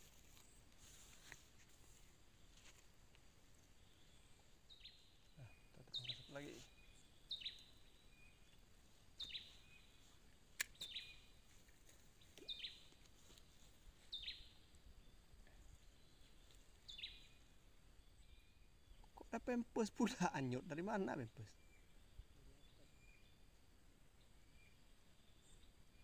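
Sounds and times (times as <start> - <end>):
quiet outdoor background: 0.0 - 26.0
sharp click: 10.6 - 11.0.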